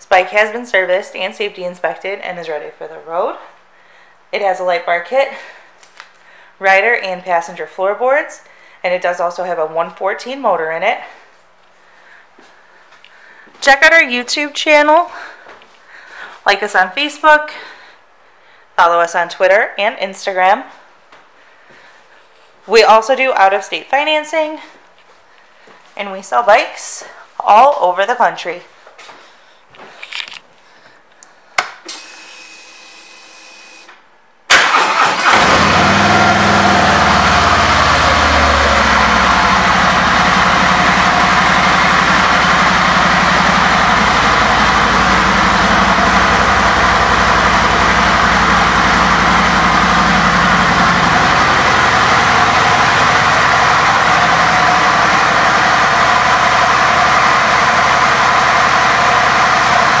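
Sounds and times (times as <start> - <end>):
motorcycle engine idling: 35.7 - 60.0.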